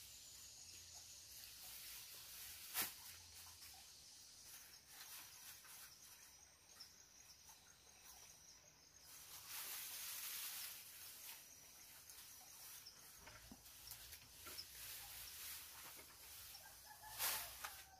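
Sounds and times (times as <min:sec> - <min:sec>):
grass leaves rustling: 0:01.3 - 0:06.3, 0:09.0 - 0:17.9.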